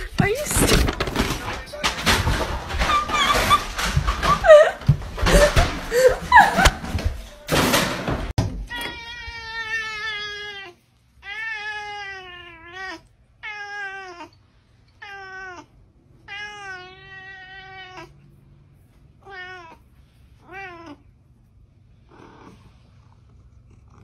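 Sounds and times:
cat meowing: 0:16.3 - 0:18.2.

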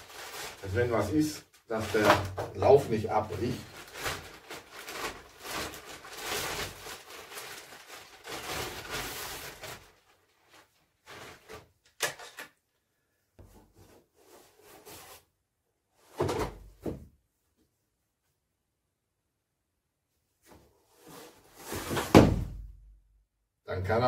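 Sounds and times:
plastic sleeve crinkling: 0:00.0 - 0:11.7.

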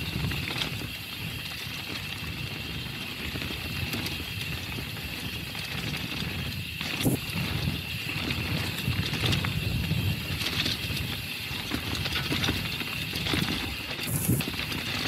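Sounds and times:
bike rattling and knocking: 0:00.0 - 0:15.0
bike tyres rumbling on stones: 0:00.0 - 0:15.0.

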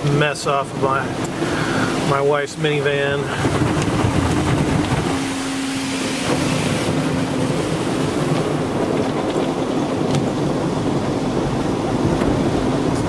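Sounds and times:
spraying water: 0:00.0 - 0:13.0
steady motor hum: 0:00.0 - 0:13.0
brush strips slapping windshield: 0:03.3 - 0:10.6.

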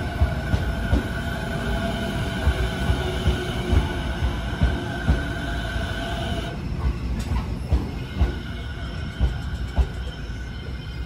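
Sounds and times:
train wheels knocking over rail joints: 0:00.0 - 0:01.4, 0:02.3 - 0:05.5, 0:06.8 - 0:10.1.

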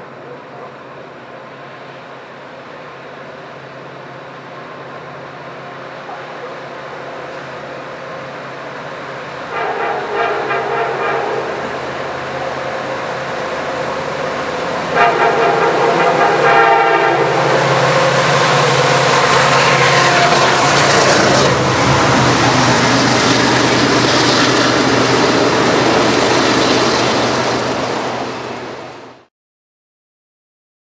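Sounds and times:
diesel engines passing: 0:00.0 - 0:29.2
locomotive horn blast: 0:09.5 - 0:12.7, 0:14.8 - 0:22.1.

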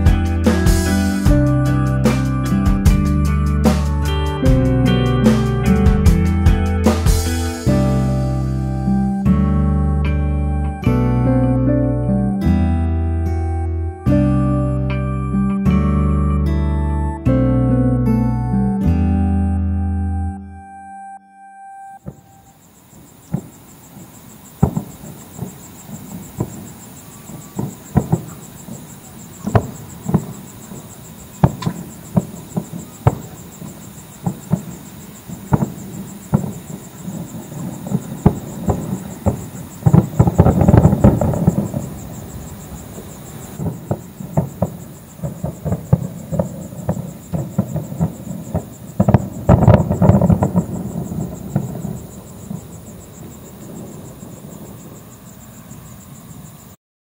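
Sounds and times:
fireworks bursting: 0:00.0 - 0:02.7, 0:03.6 - 0:04.2, 0:22.0 - 0:56.1.

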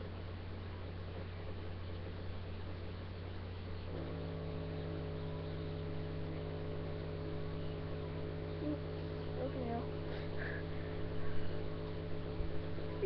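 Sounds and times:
steady electrical hum: 0:00.0 - 0:13.0
higher humming tones: 0:03.9 - 0:13.0.

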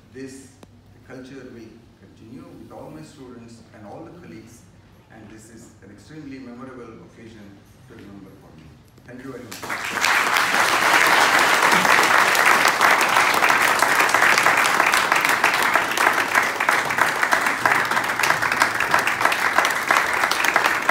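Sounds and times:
audience applauding: 0:09.5 - 0:20.9.

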